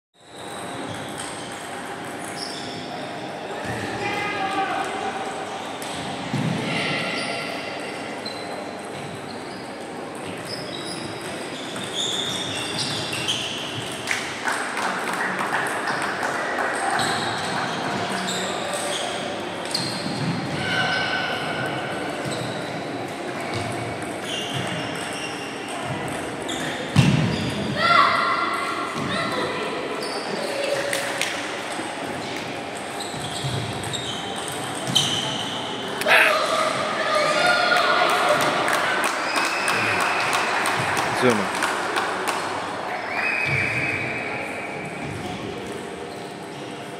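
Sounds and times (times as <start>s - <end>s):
shoes squeaking on floor: 0.2s - 3.1s, 8.2s - 13.9s, 17.0s - 20.9s, 23.5s - 27.6s, 30.0s - 30.7s, 32.8s - 36.3s
sports hall din: 0.2s - 46.9s.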